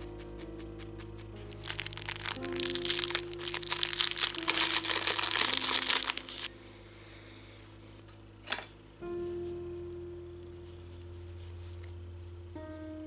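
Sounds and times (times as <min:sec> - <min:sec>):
soft background music: 0:00.0 - 0:13.0
plastic bag crinkling: 0:01.5 - 0:06.5.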